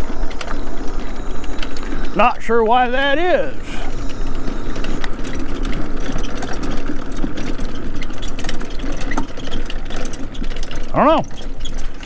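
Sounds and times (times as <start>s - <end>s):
bicycle tyres on gravel: 0.0s - 12.0s
small clicks and rattles: 3.9s - 12.0s.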